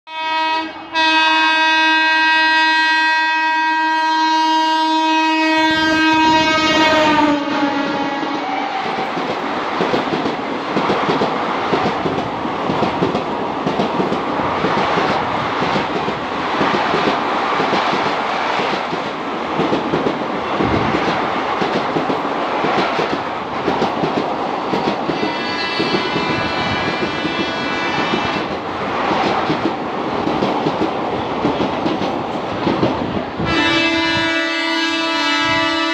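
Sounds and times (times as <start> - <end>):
locomotive horn blast: 0.1 - 9.0, 25.2 - 28.5, 33.4 - 35.9
train rushing past: 5.2 - 35.9
train wheels clattering over rail joints: 8.9 - 33.3.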